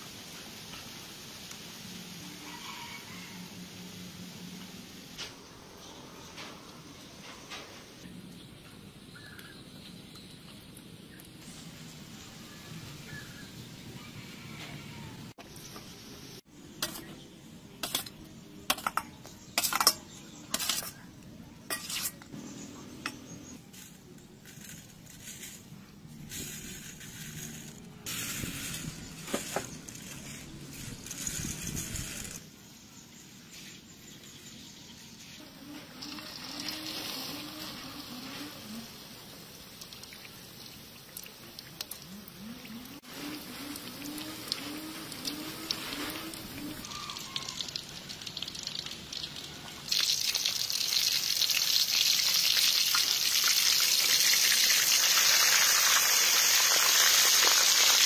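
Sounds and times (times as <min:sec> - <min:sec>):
hot oil sizzling: 0:00.0 - 0:08.1, 0:21.6 - 0:32.5, 0:33.1 - 0:58.0
utensils clinking against pot: 0:17.8 - 0:21.1, 0:21.7 - 0:22.3
liquid being poured: 0:39.7 - 0:53.7.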